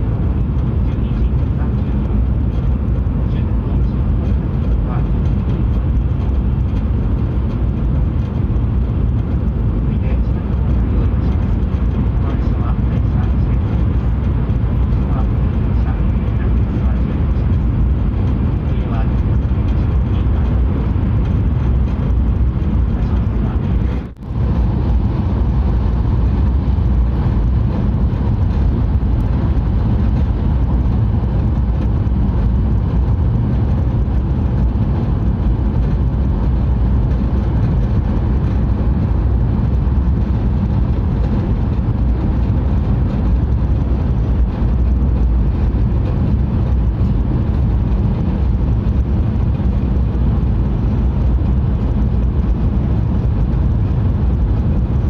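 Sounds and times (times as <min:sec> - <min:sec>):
train cabin rumble: 0:00.0 - 0:55.0.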